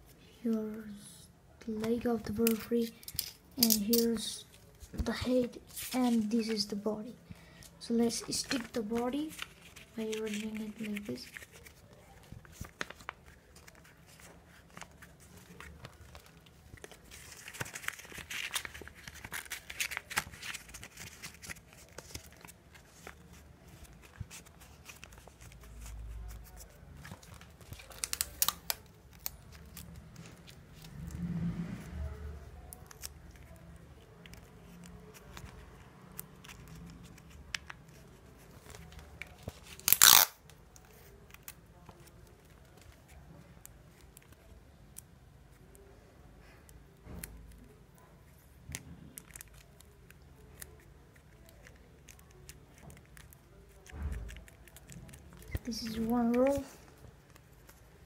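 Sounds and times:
paper rustling: 0:03.6 - 0:31.0
sticky tape ripping: 0:27.3 - 0:30.5, 0:39.4 - 0:40.6.

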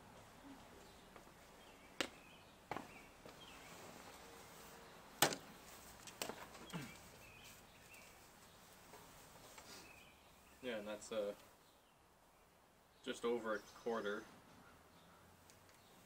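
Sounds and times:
faint bird chirps: 0:06.6 - 0:08.7.

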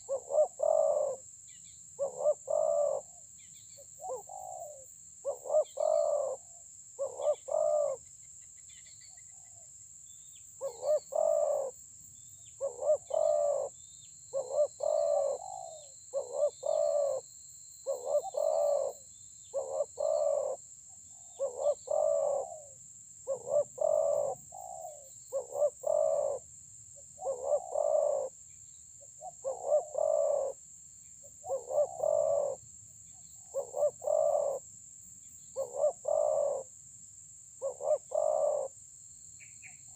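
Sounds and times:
dove cooing: 0:00.0 - 0:01.2, 0:02.0 - 0:03.2, 0:04.0 - 0:08.0, 0:10.6 - 0:11.8, 0:12.6 - 0:13.7, 0:14.3 - 0:17.2, 0:17.8 - 0:20.6, 0:21.2 - 0:26.5, 0:27.2 - 0:28.4, 0:29.2 - 0:30.6, 0:31.4 - 0:32.6, 0:33.4 - 0:34.6, 0:35.5 - 0:36.7, 0:37.6 - 0:38.7.

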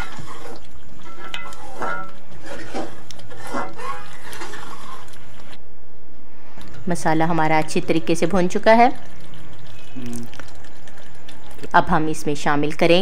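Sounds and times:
metal spoon scraping a pot: 0:00.0 - 0:05.5.

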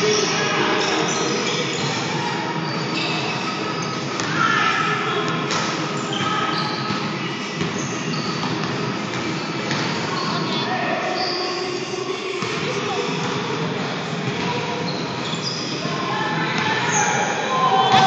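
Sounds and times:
sneakers squeaking: 0:00.0 - 0:18.0.

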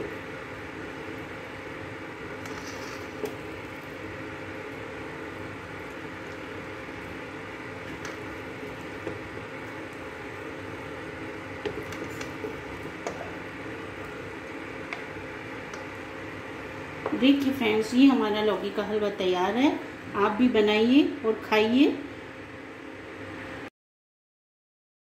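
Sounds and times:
spatula scraping sticky food in pan: 0:02.3 - 0:03.4
spatula tapping pan: 0:11.6 - 0:13.3.

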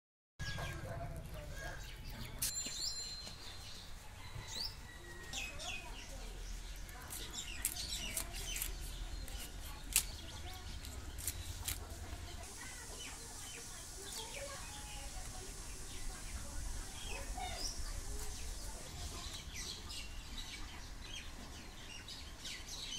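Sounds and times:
birds chirping: 0:00.4 - 0:22.9
knife scraping fish scales: 0:07.0 - 0:11.9.

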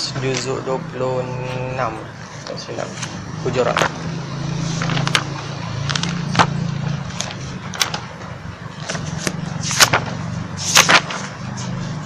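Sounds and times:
paper pages turning: 0:04.6 - 0:08.1, 0:08.7 - 0:12.0.

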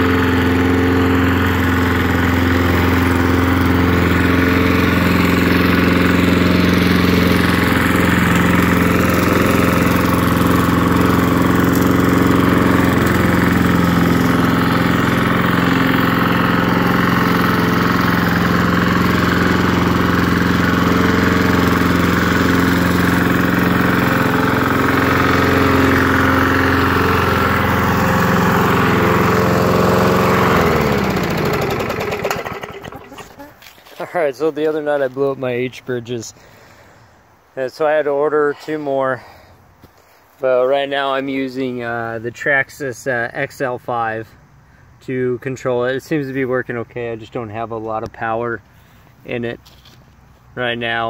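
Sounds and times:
engine spinning down: 0:00.0 - 0:33.5
lawn mower engine running: 0:00.0 - 0:37.0.

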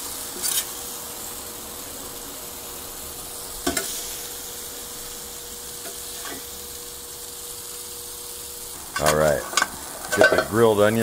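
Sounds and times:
meat sizzling on a griddle: 0:00.0 - 0:11.0
metal spatula clacking on griddle: 0:09.0 - 0:10.5.

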